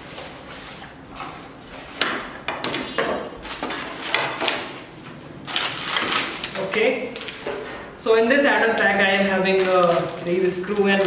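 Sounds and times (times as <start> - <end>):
plastic bags rustling: 3.2 - 11.0.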